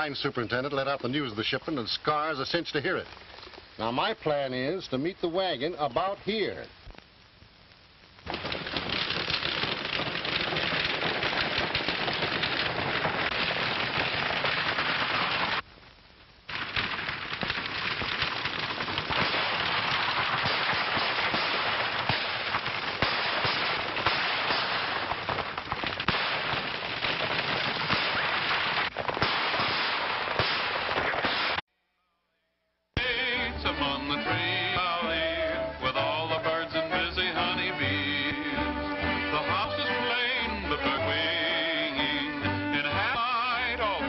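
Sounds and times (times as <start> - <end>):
rapid gunfire: 8.3 - 15.6, 16.5 - 31.6.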